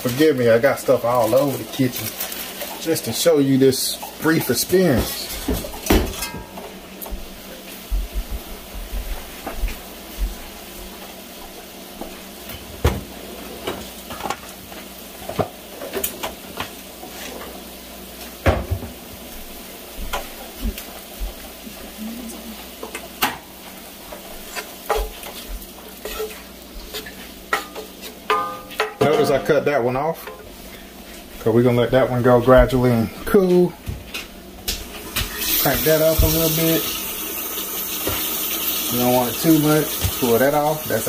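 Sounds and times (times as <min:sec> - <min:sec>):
cookware and utensils clinking: 0:00.0 - 0:06.8, 0:26.0 - 0:30.5
lobster sizzling in butter: 0:00.0 - 0:07.8, 0:11.0 - 0:31.4, 0:34.6 - 0:41.0
stirring in a pan: 0:00.0 - 0:07.8, 0:19.2 - 0:31.5.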